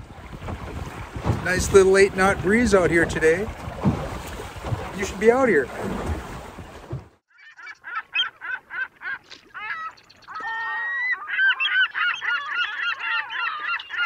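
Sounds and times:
geese honking: 7.4s - 14.0s.

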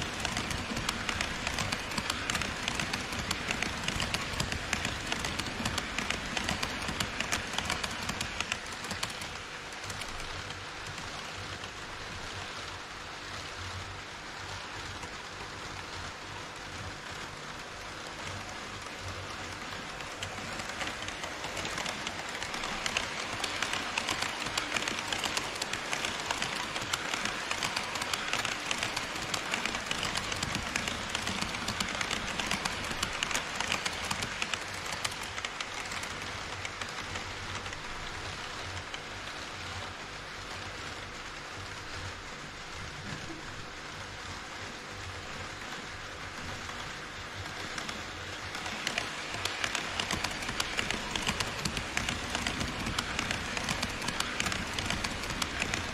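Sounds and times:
model train wheels clattering: 0.0s - 11.8s, 17.2s - 39.2s, 45.7s - 55.9s.

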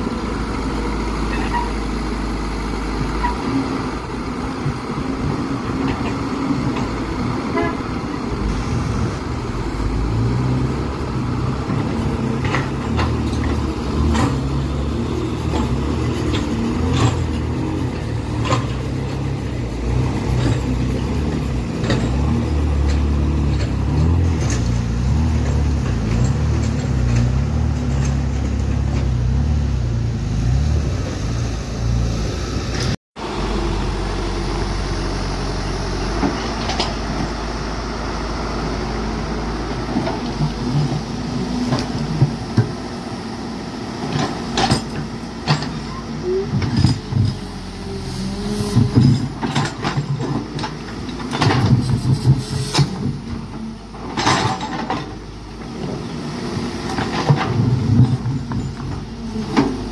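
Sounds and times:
dump truck diesel engine running: 0.0s - 59.9s
excavator diesel engine running: 0.0s - 59.9s
sharp knocks and clanks: 48.8s - 53.2s.

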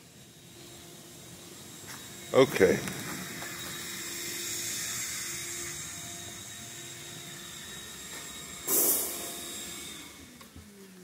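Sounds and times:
hot tub air blower whooshing: 0.0s - 10.9s.

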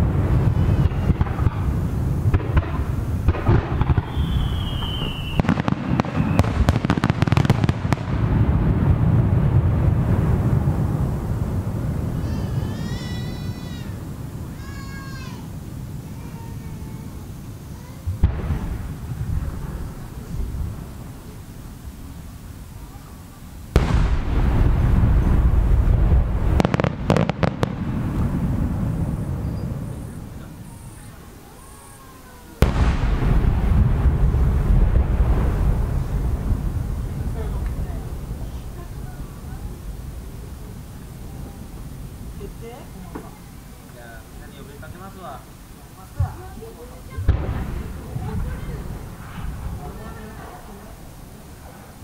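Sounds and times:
firework whistle: 0.0s - 8.0s, 23.7s - 33.2s
fireworks bursting: 0.0s - 52.0s.

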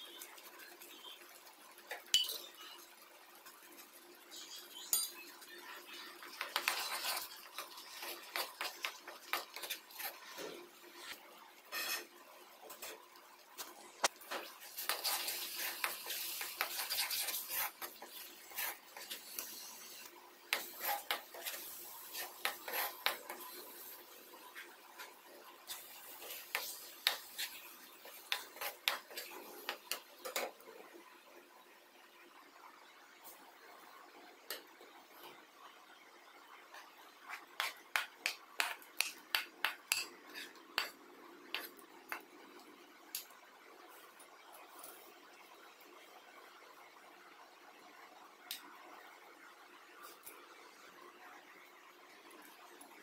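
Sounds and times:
steel ladle scraping a pan: 6.4s - 12.2s, 14.8s - 23.9s.

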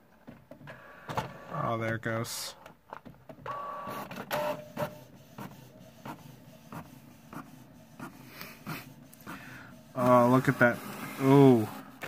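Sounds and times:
printer motors whining: 3.4s - 12.0s.

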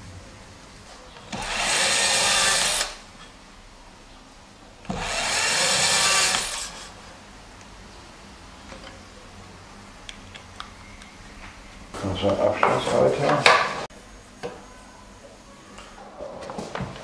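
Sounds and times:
electric drill boring into board: 1.3s - 3.0s, 4.9s - 6.8s.

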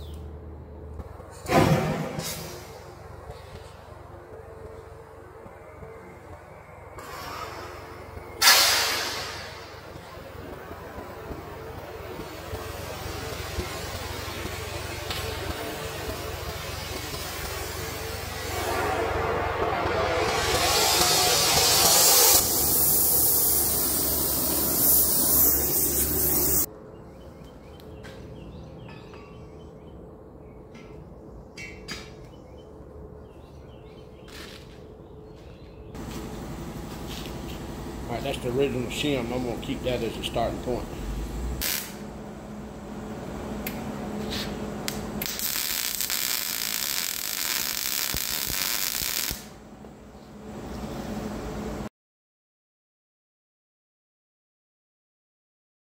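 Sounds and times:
compressed air hissing: 8.4s - 9.8s, 20.4s - 26.7s
arc welding hiss: 11.8s - 18.5s, 20.6s - 26.7s, 41.6s - 42.1s, 44.3s - 49.6s.

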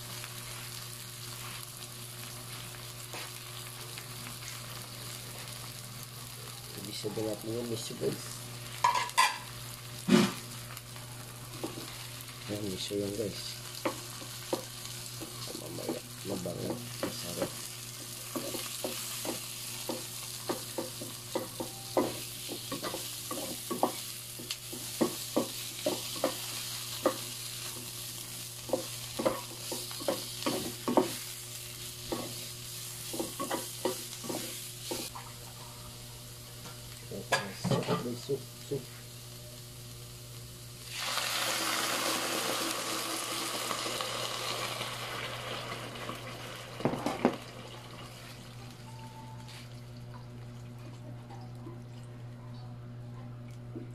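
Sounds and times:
vegetables sizzling in oil: 0.0s - 48.8s
spatula scraping and tapping wok: 8.8s - 9.5s, 16.6s - 28.0s, 28.6s - 35.1s
liquid poured into hot pan hissing: 40.8s - 48.4s.

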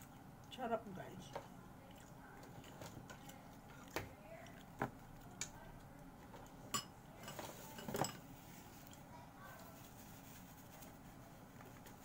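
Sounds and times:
cutlery clinking on dishes: 6.7s - 8.3s.

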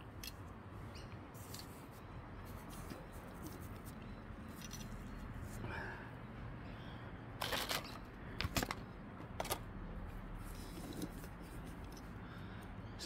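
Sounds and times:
model car clicks and rattles: 7.4s - 9.7s.

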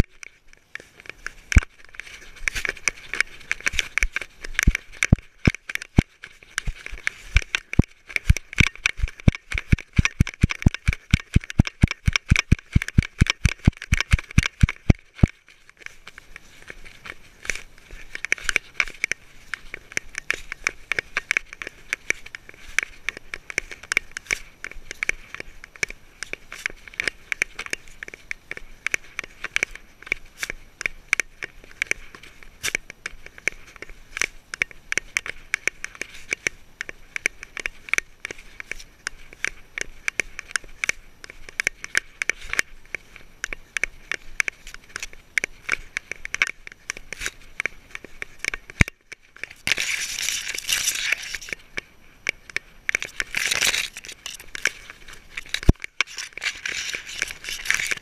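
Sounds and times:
rustling through grass: 0.0s - 58.0s
fur rubbing on camera housing: 46.8s - 51.7s, 52.9s - 58.0s.

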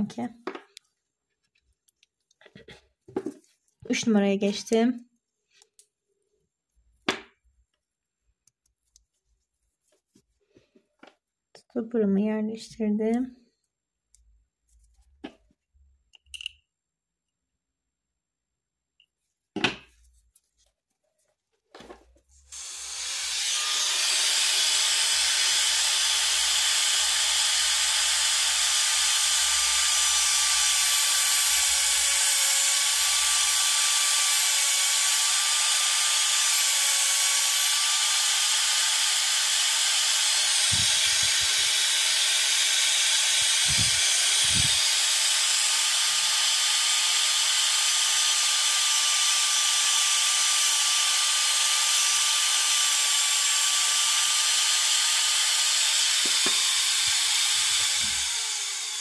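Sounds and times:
dental drill whining: 22.5s - 59.0s.

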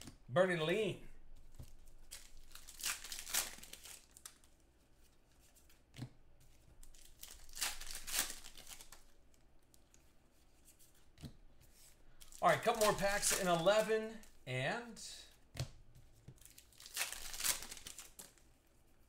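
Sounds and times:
wrapper tearing and crinkling: 2.0s - 4.4s, 6.8s - 9.1s, 12.2s - 13.6s, 16.4s - 18.4s.

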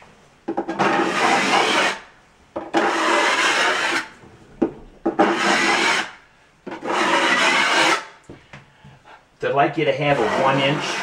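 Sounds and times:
knife scraping across board: 0.7s - 4.1s, 5.1s - 6.1s, 6.7s - 8.1s, 10.1s - 11.0s.

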